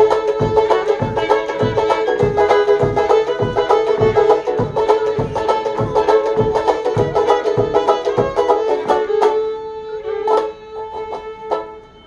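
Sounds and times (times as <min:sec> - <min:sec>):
low thumps on the beat: 0:00.0 - 0:09.5
fiddle and banjo playing: 0:00.0 - 0:12.0.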